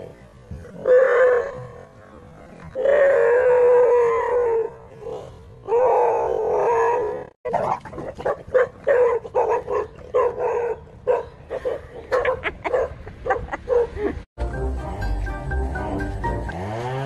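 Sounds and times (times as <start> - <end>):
dogs barking: 7.5 - 14.0.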